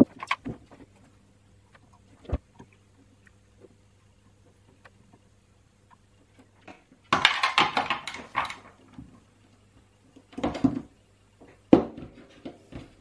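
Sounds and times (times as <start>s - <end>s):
small hard parts clattering: 6.6s - 9.2s.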